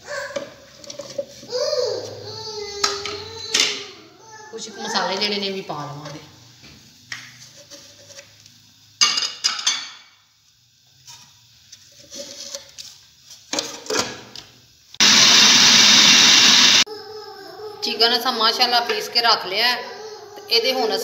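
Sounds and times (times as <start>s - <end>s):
food processor motor grinding: 15.0s - 16.8s.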